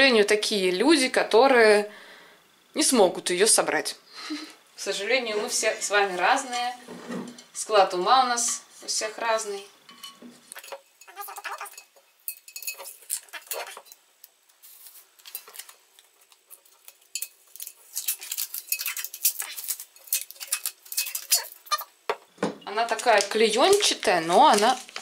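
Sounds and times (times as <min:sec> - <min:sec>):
glass jar knocking and clinking: 0:09.9 - 0:14.0.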